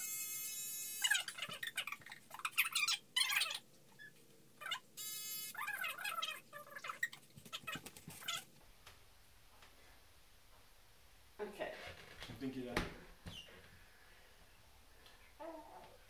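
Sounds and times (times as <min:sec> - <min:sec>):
baby squealing and babbling: 0:05.6 - 0:08.4.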